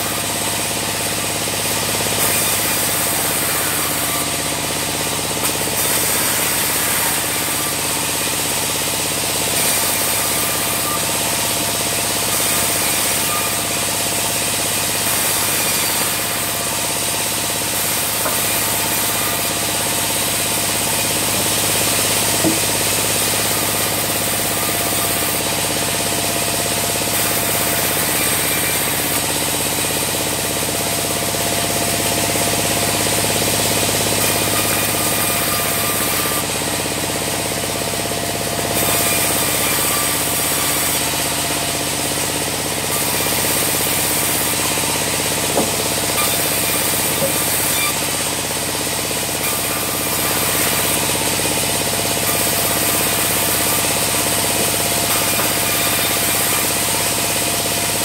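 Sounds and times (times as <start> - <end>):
band sawmill running: 0.0 - 58.0
knock: 22.4 - 22.7.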